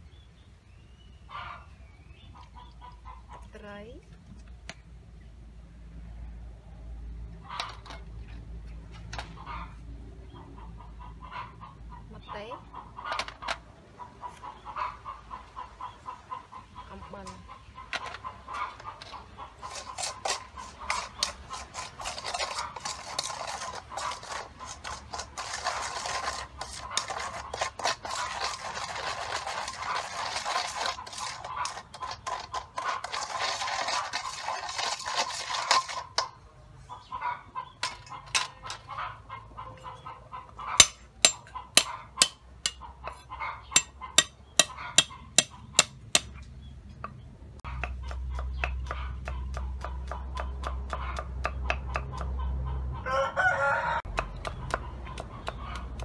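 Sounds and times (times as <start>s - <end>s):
metal spoon scraping a steel bowl: 18.9s - 36.4s, 40.8s - 46.3s
knife chopping on wooden board: 47.7s - 52.4s, 54.1s - 56.0s.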